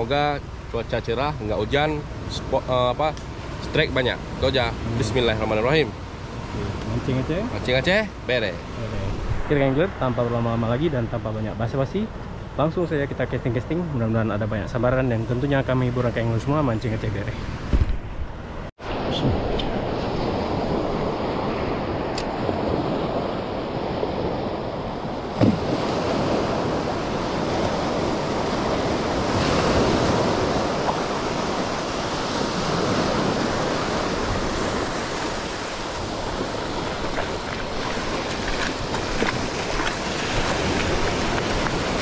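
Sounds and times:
wind on microphone: 8.8s - 9.9s, 17.0s - 42.0s
sea surf washing onto beach: 18.8s - 42.0s.

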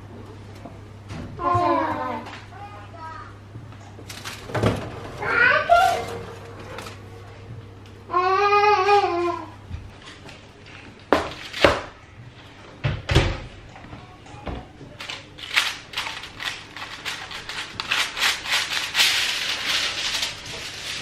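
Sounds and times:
aluminium foil crinkling: 15.0s - 21.0s.

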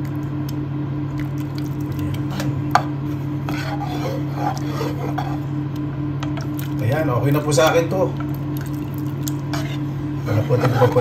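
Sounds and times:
steady low hum: 0.0s - 11.0s
spoon stirring and scraping pot: 2.1s - 5.6s, 9.2s - 11.0s.

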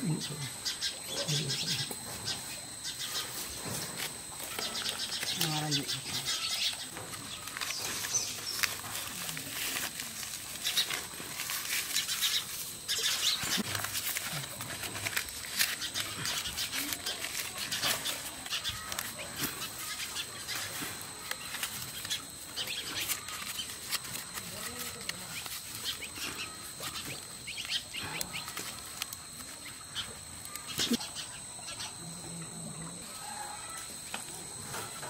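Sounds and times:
leaves crinkling and rustling: 3.2s - 30.9s
dry leaves shifting: 7.1s - 29.7s.

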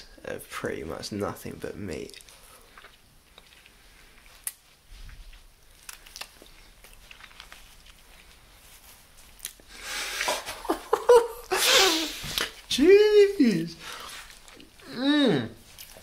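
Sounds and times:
wet mouth clicks and lip smacks: 2.1s - 4.7s, 9.4s - 10.4s.

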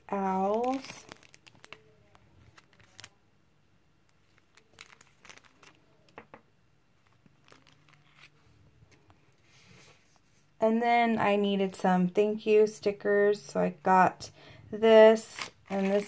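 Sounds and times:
plastic sleeve crinkling: 0.1s - 3.2s, 4.1s - 6.4s, 7.0s - 8.4s, 15.2s - 16.0s.

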